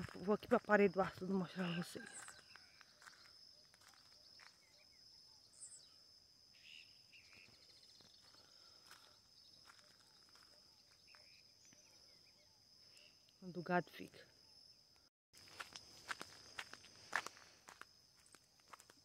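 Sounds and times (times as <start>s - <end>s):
high-pitched insect drone: 0.8s - 13.6s
faint chirps: 1.6s - 15.1s.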